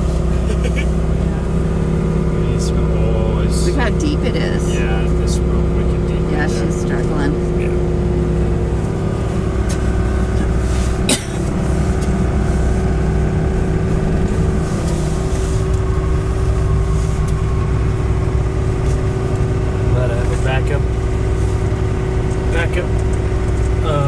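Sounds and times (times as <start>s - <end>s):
diesel engine droning: 0.0s - 24.0s.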